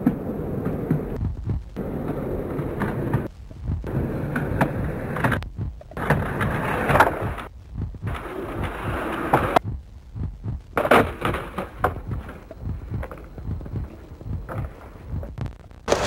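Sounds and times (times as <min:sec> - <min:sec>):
skateboard wheels rolling on concrete: 0:00.0 - 0:09.7, 0:10.6 - 0:16.0.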